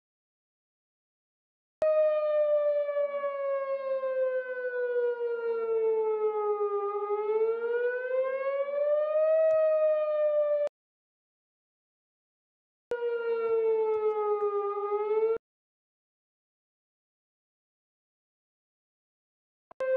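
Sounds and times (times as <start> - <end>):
warning siren wailing: 1.8 - 10.7, 12.9 - 15.4.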